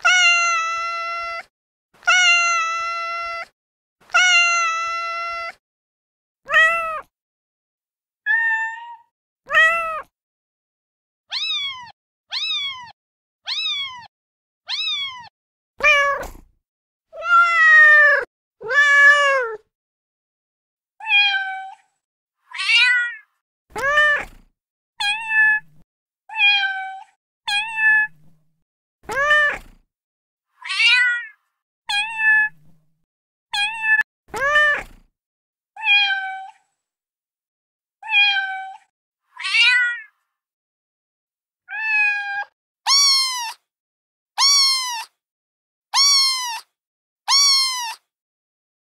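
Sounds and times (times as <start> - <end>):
recorded cat meows: 0.0 - 5.6, 6.5 - 7.1, 8.2 - 10.2, 11.2 - 16.5, 17.1 - 19.7, 21.0 - 28.4, 29.0 - 29.8, 30.5 - 32.8, 33.5 - 35.1, 35.8 - 36.8, 38.0 - 40.2, 41.6 - 43.7, 44.4 - 45.2, 45.9 - 48.1.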